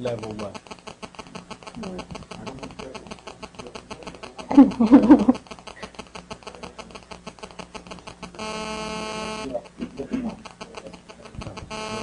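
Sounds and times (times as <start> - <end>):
fast even crackle: 0.0 - 12.0.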